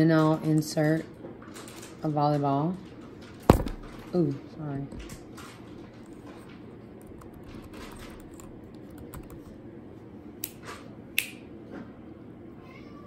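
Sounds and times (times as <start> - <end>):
computer keyboard typing: 7.0 - 9.5.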